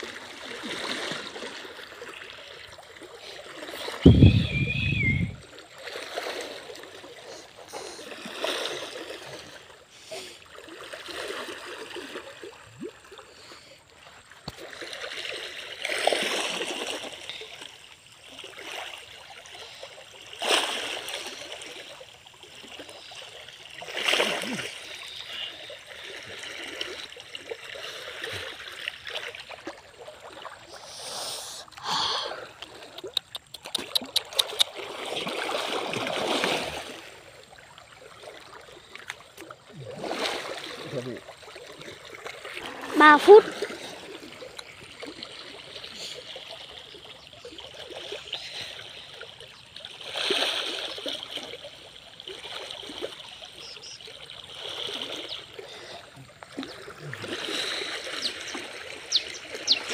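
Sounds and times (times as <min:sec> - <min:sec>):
person wading through water: 0:00.0 - 0:59.9
running stream water: 0:00.0 - 0:59.9
loud water splash: 0:03.6 - 0:06.7, 0:34.4 - 0:37.3
quick ticks: 0:32.6 - 0:34.8.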